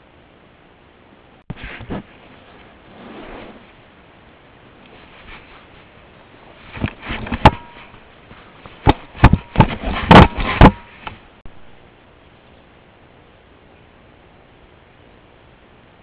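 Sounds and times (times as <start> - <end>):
knocks and scrapes on camera: 1.5 - 3.7, 6.6 - 11.2.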